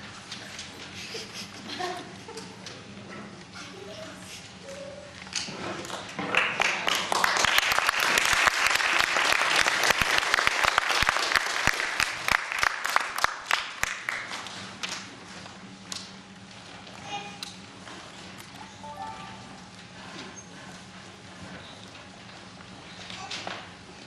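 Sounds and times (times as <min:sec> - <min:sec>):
audience applauding: 0:05.9 - 0:14.3.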